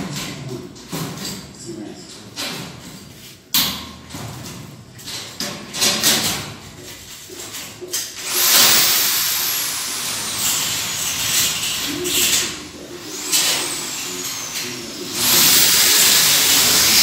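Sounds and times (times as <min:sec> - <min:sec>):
steel framing knocks and scrapes: 0:02.3 - 0:08.2
power drill drilling into metal: 0:08.2 - 0:17.0.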